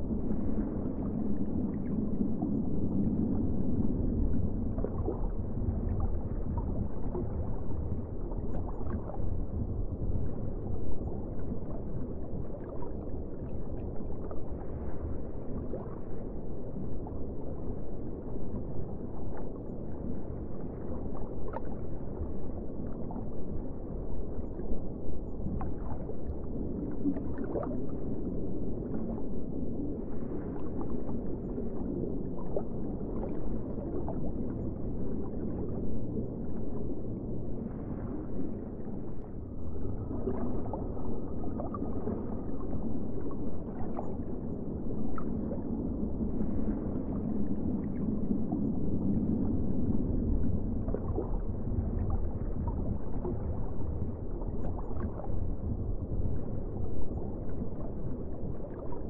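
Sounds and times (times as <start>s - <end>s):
muffled underwater rumble: 0.0s - 59.0s
water bubbling and gurgling: 0.0s - 59.0s.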